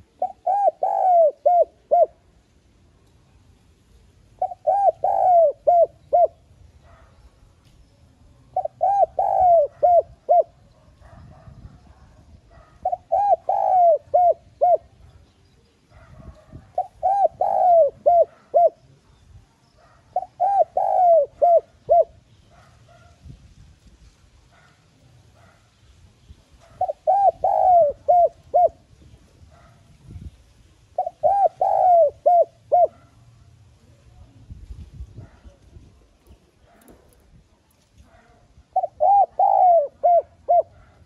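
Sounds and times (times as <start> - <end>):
dove cooing: 0.0 - 2.4, 4.4 - 7.2, 8.5 - 15.1, 15.9 - 19.1, 19.8 - 23.1, 26.6 - 29.8, 30.9 - 33.2, 38.0 - 41.0.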